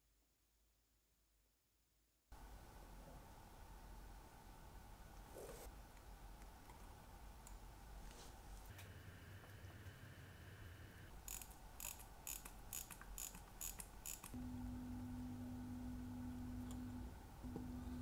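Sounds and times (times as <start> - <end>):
steady low hum: 2.4 - 18.0
sharp mechanism clicks: 11.2 - 14.4.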